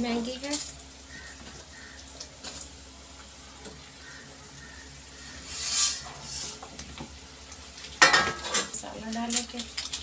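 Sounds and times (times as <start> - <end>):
broth simmering in a pan: 0.0 - 10.0
metal lid clattering onto pan: 8.0 - 8.7.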